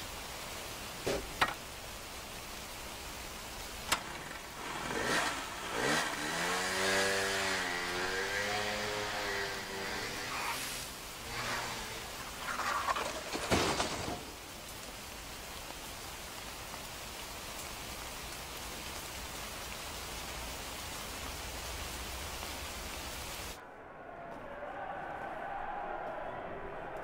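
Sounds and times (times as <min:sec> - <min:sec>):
heavy rain on a road: 0:00.0 - 0:23.6.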